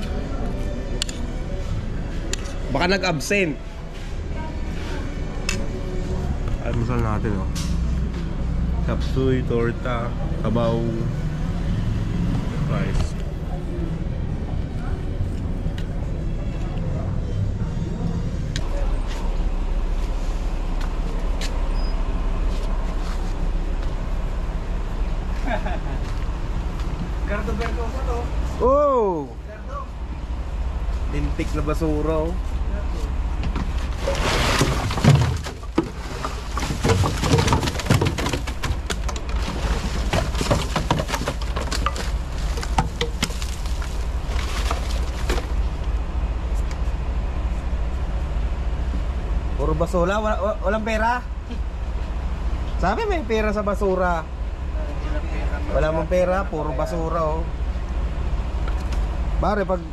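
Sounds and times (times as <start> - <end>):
bus diesel engine idling: 0.0 - 34.0, 41.9 - 59.9
plastic bottles and wrappers rustling: 33.7 - 45.7.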